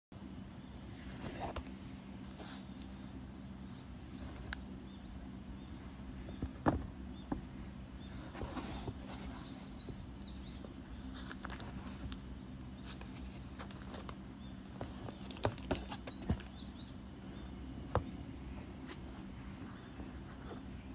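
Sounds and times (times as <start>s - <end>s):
plastic sleeves rustling: 10.6s - 12.2s.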